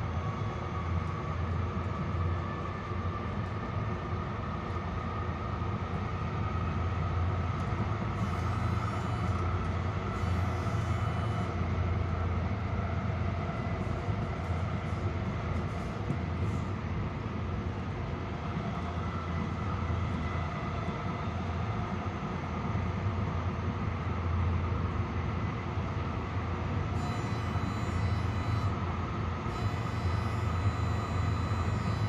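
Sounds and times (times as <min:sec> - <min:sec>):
train wheels rumbling on track: 0:00.0 - 0:32.0
faint high whine: 0:08.2 - 0:12.2, 0:26.9 - 0:28.8, 0:29.5 - 0:32.0.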